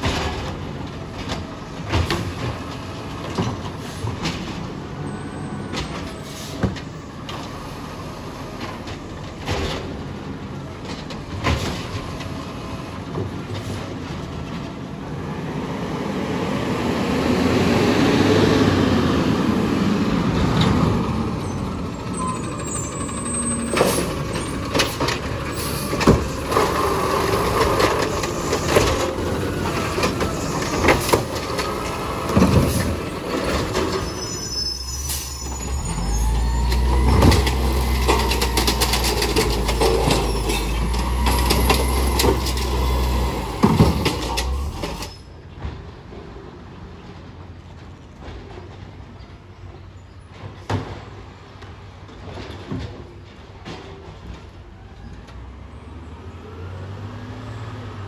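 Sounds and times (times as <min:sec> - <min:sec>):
diesel engine revving: 0:15.0 - 0:34.2, 0:34.8 - 0:45.1, 0:55.8 - 0:58.0
hydraulic arm lifting carts: 0:20.2 - 0:45.4
carts knocking against truck: 0:23.2 - 0:34.1, 0:36.8 - 0:45.0.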